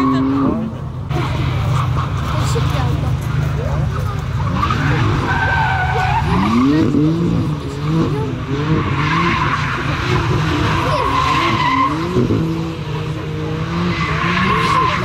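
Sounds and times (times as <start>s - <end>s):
car engine revving: 0.0s - 15.0s
tyres squealing: 4.0s - 15.0s.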